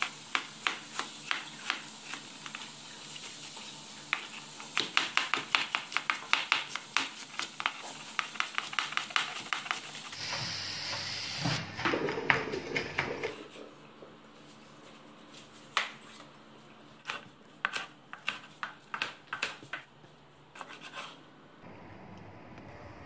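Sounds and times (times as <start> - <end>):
knife chopping on wooden board: 4.1 - 9.8.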